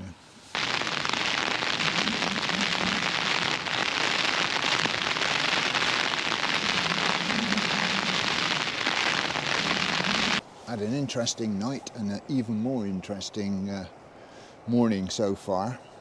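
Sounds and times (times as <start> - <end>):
heavy rain on tent: 0.0 - 10.4.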